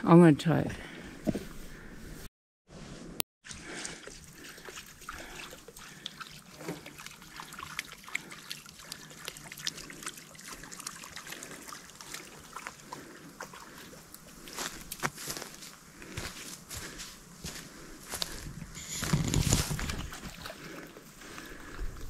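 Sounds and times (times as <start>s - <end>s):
water drips and splashes: 3.4s - 15.3s, 19.5s - 21.0s
water trickling: 3.5s - 14.6s.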